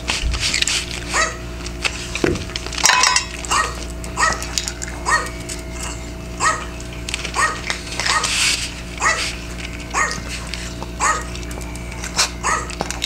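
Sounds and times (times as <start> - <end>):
dog crunching dry kibble: 0.0 - 13.0
recorded dog barking: 1.1 - 1.5, 3.5 - 8.4, 9.0 - 10.3, 10.9 - 11.4, 12.2 - 12.8.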